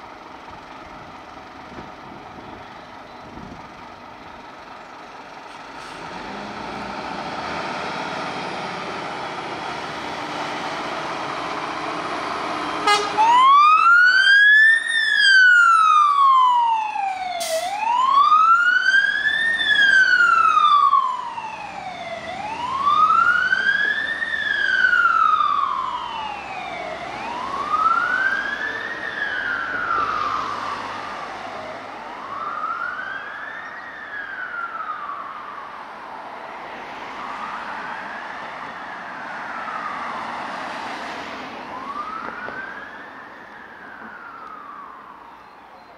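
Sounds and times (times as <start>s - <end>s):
siren wailing: 12.8s - 31.1s, 31.7s - 35.8s, 41.6s - 45.8s.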